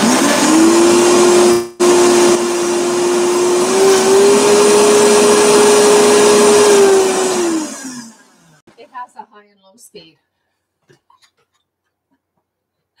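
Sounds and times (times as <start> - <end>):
blender motor whine: 0.0 - 8.6.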